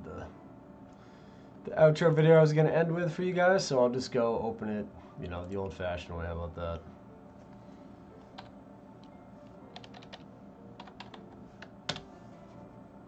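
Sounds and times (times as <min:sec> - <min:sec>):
computer keyboard typing: 0:09.7 - 0:10.2, 0:10.8 - 0:12.1.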